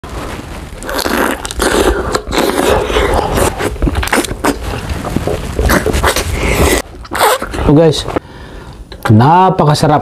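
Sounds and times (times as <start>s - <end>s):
person chewing food: 0.8s - 7.6s
wet mouth noises: 0.8s - 7.7s.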